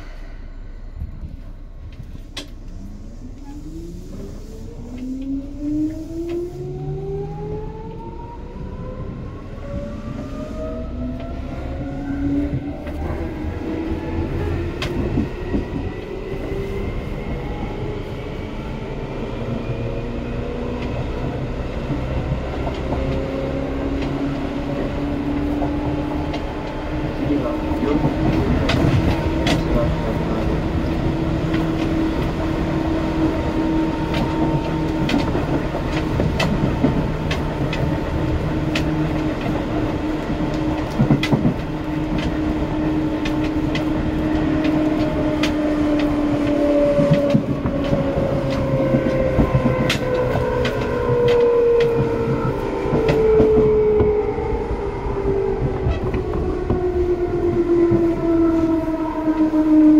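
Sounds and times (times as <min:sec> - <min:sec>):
rumble of train wheels: 0:00.0 - 0:59.9
train motors humming: 0:09.2 - 0:59.9
wheels clicking over rail joints: 0:20.6 - 0:54.3.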